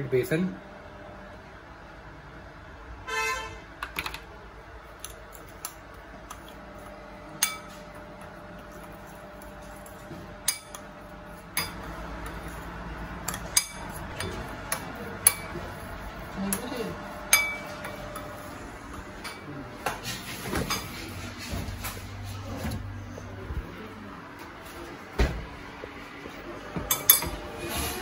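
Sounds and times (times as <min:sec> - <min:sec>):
spoon clinking against bowl: 0:17.3 - 0:17.7, 0:26.9 - 0:27.4.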